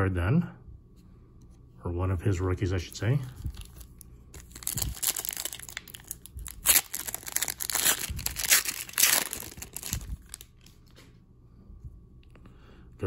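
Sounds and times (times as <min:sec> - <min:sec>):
foil wrapper tearing and crinkling: 0:03.4 - 0:10.7.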